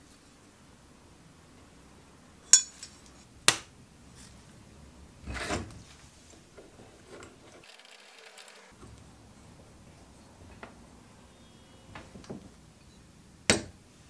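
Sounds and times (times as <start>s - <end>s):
bench vise rattling scrape: 5.3s - 8.8s.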